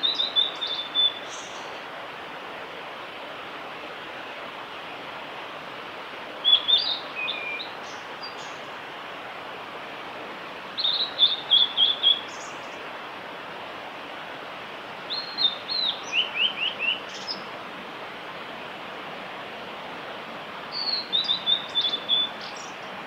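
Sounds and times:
flycatcher singing whistled notes: 0.0s - 1.7s, 6.4s - 8.5s, 10.8s - 12.5s, 15.1s - 17.5s, 20.7s - 22.8s
background hiss: 0.0s - 23.0s.

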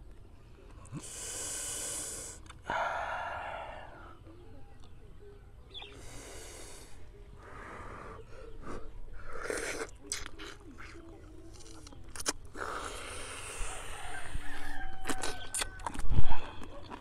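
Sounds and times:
noisy breaths and blowing: 0.7s - 4.3s, 5.8s - 10.0s, 12.5s - 14.8s
sharp mouth clicks: 9.3s - 13.0s, 15.0s - 17.0s
slurping and smacking while eating: 9.4s - 13.6s, 15.0s - 17.0s.

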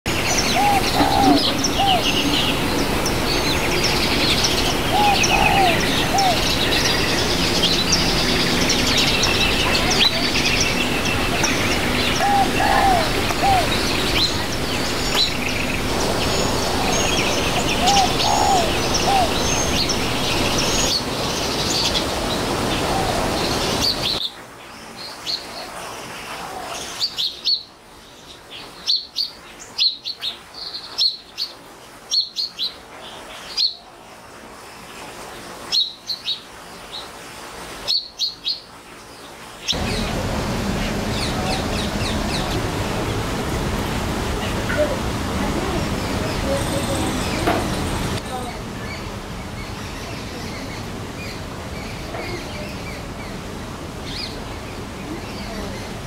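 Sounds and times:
lower bird call: 0.1s - 21.0s
noisy background: 0.1s - 24.2s, 39.8s - 56.0s
sparrows chirping: 0.1s - 24.2s, 39.7s - 43.5s, 44.2s - 53.4s.

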